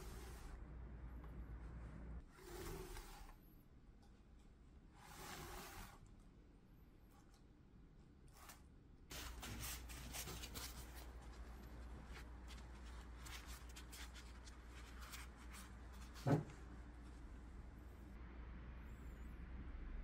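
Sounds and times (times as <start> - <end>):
low hum: 14.5 - 20.0.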